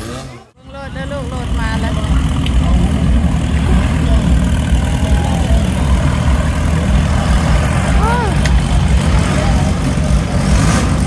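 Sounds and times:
truck engine running at low revs: 0:00.0 - 0:11.0.

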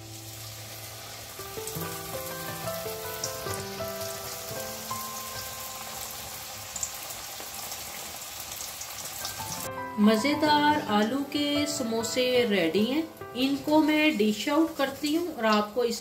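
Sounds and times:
soft background music: 0:00.0 - 0:07.3, 0:09.2 - 0:16.0
oil crackling and bubbling: 0:00.0 - 0:09.7.

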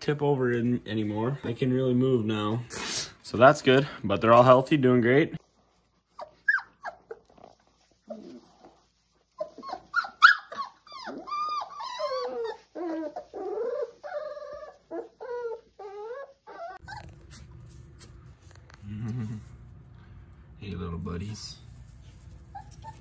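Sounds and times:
puppies whining and yelping: 0:06.0 - 0:08.5, 0:09.3 - 0:17.5, 0:22.4 - 0:23.0
low steady hum: 0:16.8 - 0:23.0.

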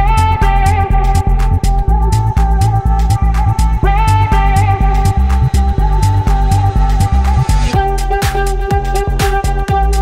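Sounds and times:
music with steady beat: 0:00.0 - 0:10.0
stepping bass line: 0:00.0 - 0:10.0.

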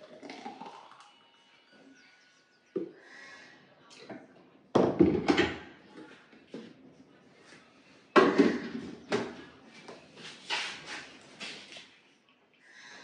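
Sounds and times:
kitchenware clunking on countertop: 0:04.8 - 0:05.7.

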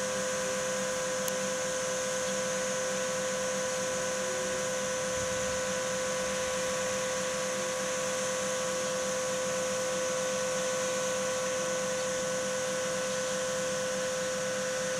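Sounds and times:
machine-like hum and whine: 0:00.0 - 0:14.9.

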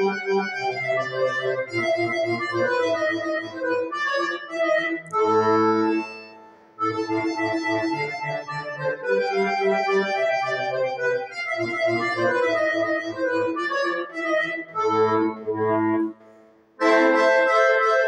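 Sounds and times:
button accordion playing: 0:00.0 - 0:18.0.

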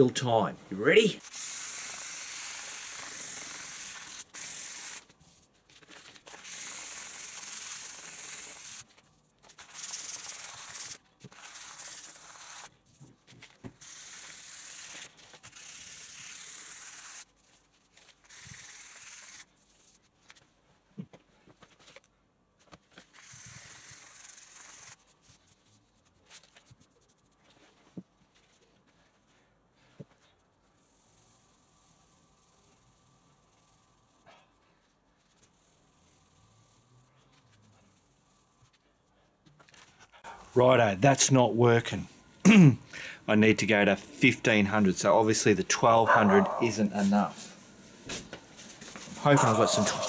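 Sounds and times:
sandpaper rubbing metal: 0:01.2 - 0:05.4, 0:06.3 - 0:08.9, 0:09.6 - 0:12.7, 0:13.8 - 0:17.3, 0:18.2 - 0:20.0, 0:23.2 - 0:25.5, 0:49.2 - 0:50.0.

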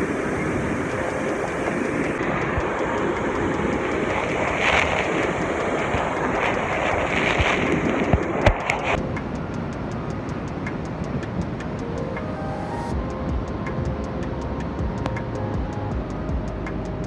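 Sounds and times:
wind buffeting microphone: 0:00.0 - 0:12.3
waterfall roaring: 0:00.0 - 0:13.7
background music ticking beat: 0:00.0 - 0:17.0.

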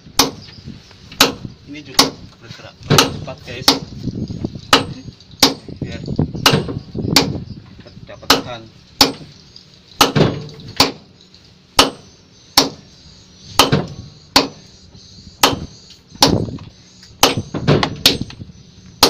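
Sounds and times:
sledgehammers striking concrete: 0:01.2 - 0:02.2, 0:02.9 - 0:04.0, 0:04.7 - 0:05.8, 0:06.4 - 0:07.4, 0:08.2 - 0:09.4, 0:10.0 - 0:11.1, 0:11.8 - 0:12.9, 0:13.6 - 0:14.6, 0:15.4 - 0:16.6, 0:17.2 - 0:18.4.

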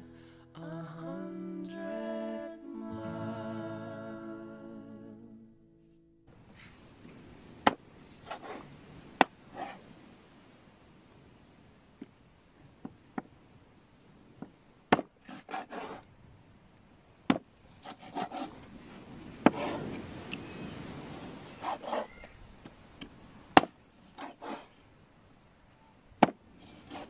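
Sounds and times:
knife sawing through meat: 0:08.2 - 0:08.6, 0:15.3 - 0:16.0, 0:17.8 - 0:18.5, 0:21.6 - 0:22.1, 0:24.1 - 0:24.7, 0:26.6 - 0:27.0.

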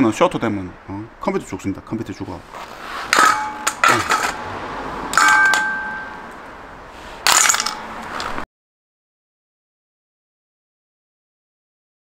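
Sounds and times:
sharp metallic clinks: 0:05.1 - 0:06.3.

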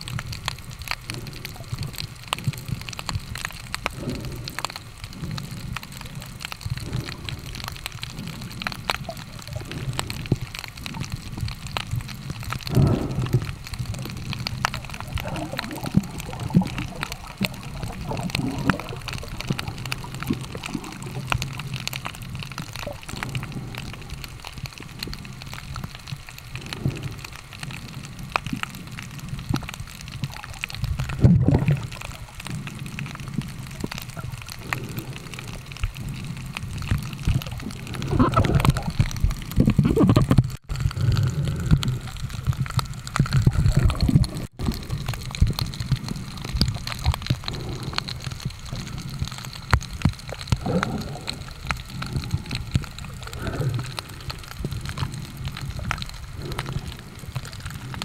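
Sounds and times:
muffled underwater rumble: 0:00.0 - 0:58.0
underwater clicks and crackles: 0:00.0 - 0:58.0
underwater gurgling: 0:00.0 - 0:58.0.

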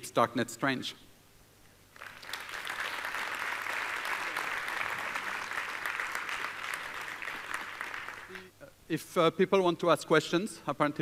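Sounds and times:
audience applauding: 0:02.0 - 0:08.5.

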